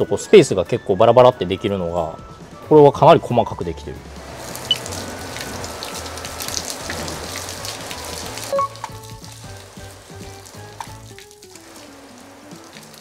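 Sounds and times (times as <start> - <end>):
simple background music melody: 0.0 - 13.0
hose water spraying on car: 4.1 - 13.0.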